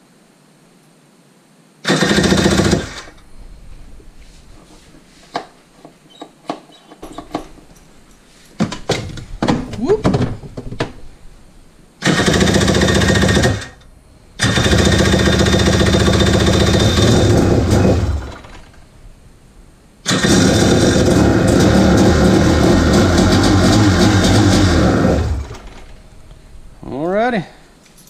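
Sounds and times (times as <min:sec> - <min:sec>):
electric starter cranking engine: 0:01.8 - 0:03.2, 0:12.0 - 0:13.8, 0:14.4 - 0:18.8, 0:20.0 - 0:26.0.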